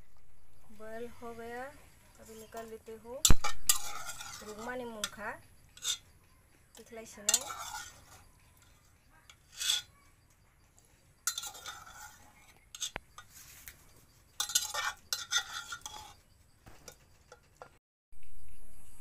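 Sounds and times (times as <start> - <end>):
metal spoon scraping in a pot: 2.4 - 10.1, 10.8 - 17.7.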